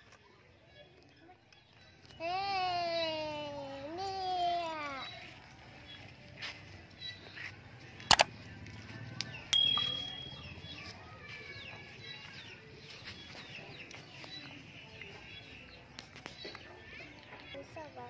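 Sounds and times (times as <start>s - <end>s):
birds chirping faintly: 9.2s - 18.0s
bright metallic ding: 9.6s - 10.5s.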